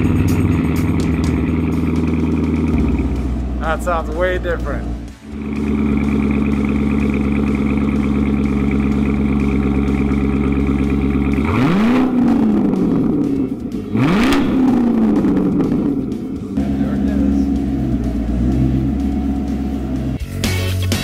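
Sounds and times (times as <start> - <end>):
car engine idling: 0.0 - 21.0
car engine revving: 0.0 - 21.0.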